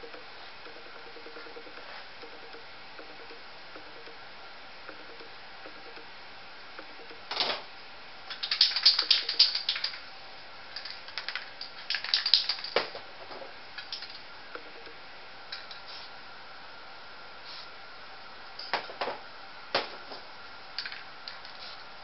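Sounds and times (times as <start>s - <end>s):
rapid clicking and scraping: 8.3s - 10.1s, 10.8s - 14.9s.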